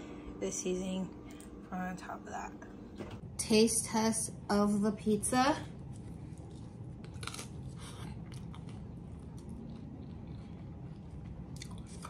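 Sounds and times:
person chewing pizza: 5.8 - 12.0.

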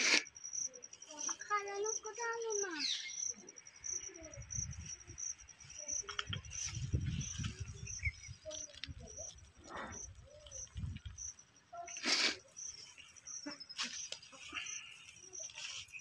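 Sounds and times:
insect chirping: 0.0 - 16.0
soil and grass scraped by hand: 11.8 - 16.0.

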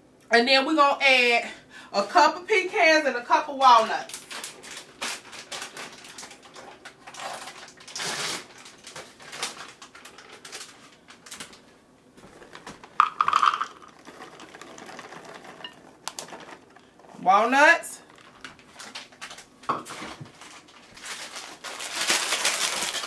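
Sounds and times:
nuts rattling into a bowl: 13.0 - 16.8.

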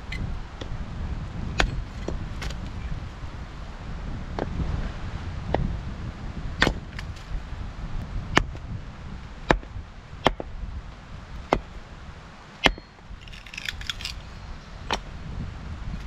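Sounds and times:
sharp wooden knocks: 6.6 - 6.8.

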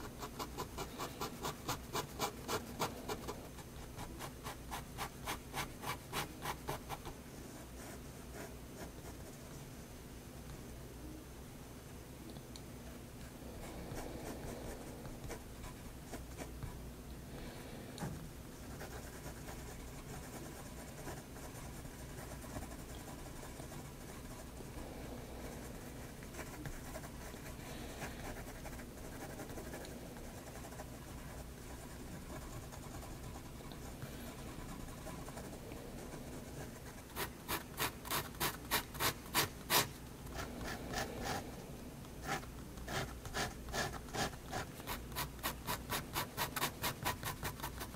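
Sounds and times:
pen scratching on paper: 0.0 - 9.4, 25.7 - 41.4, 42.2 - 47.9.

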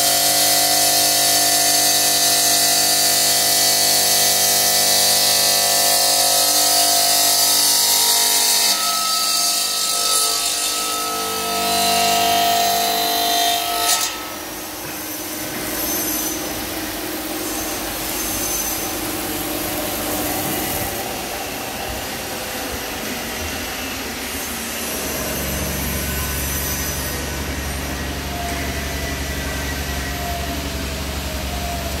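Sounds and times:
saw blade grinding stone: 0.0 - 20.9.

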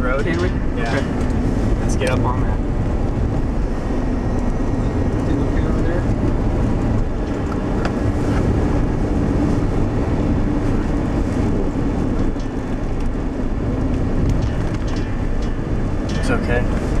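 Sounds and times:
engine and tyre rumble: 0.0 - 17.0
wind noise: 0.0 - 17.0.

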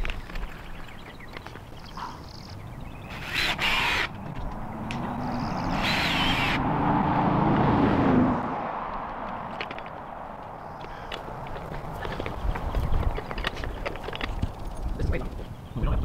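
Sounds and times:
vehicle passing on road: 2.2 - 15.4
high-pitched whirring bursts: 3.1 - 4.2, 5.2 - 6.6.

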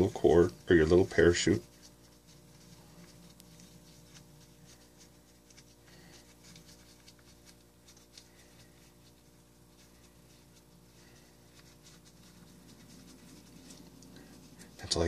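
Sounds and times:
plastic streamer crinkling: 0.0 - 15.0.

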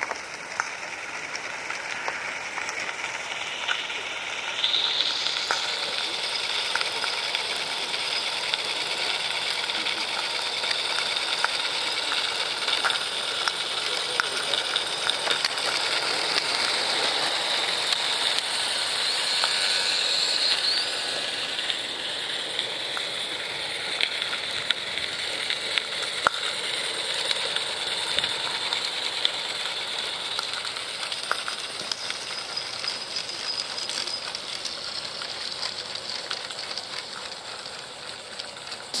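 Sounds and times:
steam hissing: 0.0 - 39.0.

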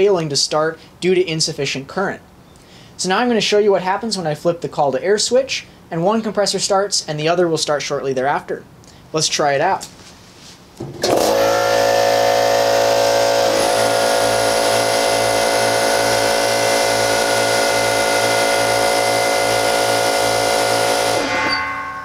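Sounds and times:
electric air compressors running: 9.9 - 21.8.

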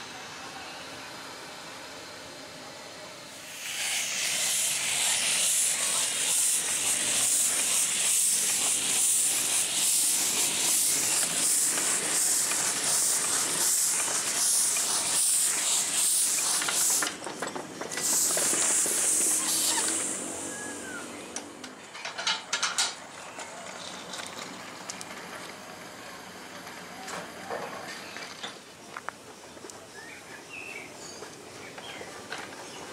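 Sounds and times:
locomotive steam hissing: 0.0 - 22.0.

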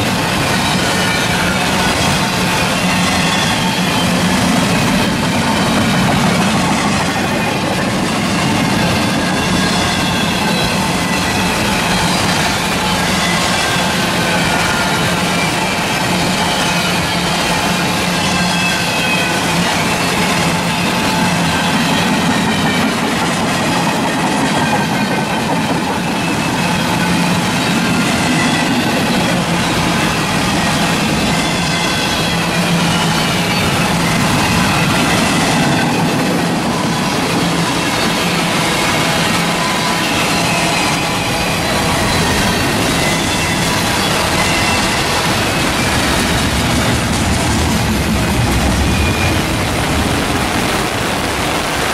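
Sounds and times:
train wheels rolling on rails: 0.0 - 51.9
heavy rain: 29.4 - 51.9
freight cars rumbling past: 41.3 - 51.9
heavy rain hissing: 43.8 - 51.9.

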